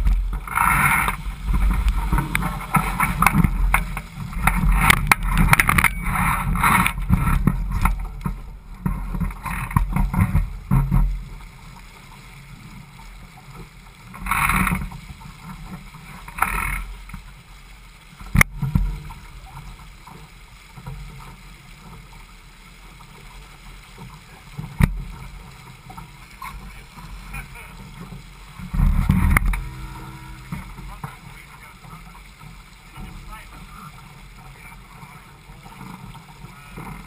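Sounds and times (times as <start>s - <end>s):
low rumble: 0.0s - 11.7s, 28.6s - 31.3s
water splashing against boat hull: 0.0s - 37.0s.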